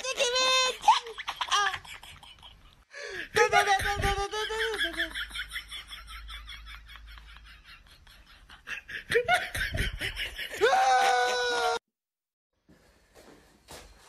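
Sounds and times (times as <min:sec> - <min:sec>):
man laughing: 0:00.9 - 0:11.8
high-pitched vocal cry: 0:10.6 - 0:11.8.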